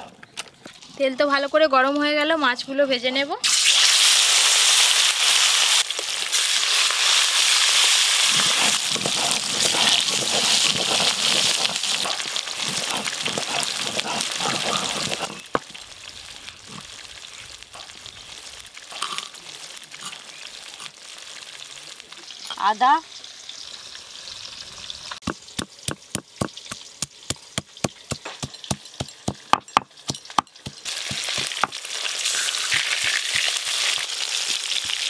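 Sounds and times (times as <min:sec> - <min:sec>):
fish frying in oil: 0:03.4 - 0:35.0.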